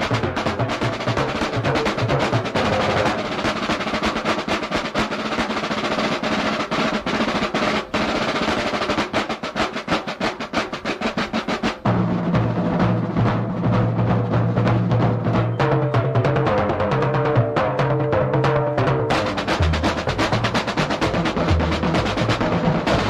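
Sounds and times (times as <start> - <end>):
snare drum rolls: 0.0 - 23.0
bass drum: 11.8 - 23.0.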